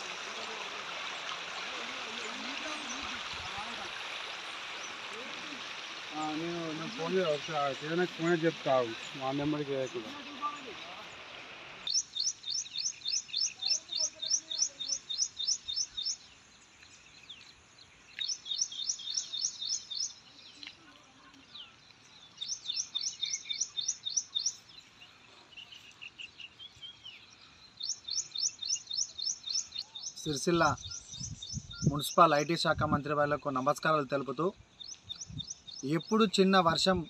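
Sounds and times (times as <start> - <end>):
faint outdoor background noise: 0.0 - 37.0
bird chirping rapidly: 11.8 - 16.3, 18.2 - 20.2, 22.4 - 24.7, 25.6 - 32.7, 34.8 - 37.0.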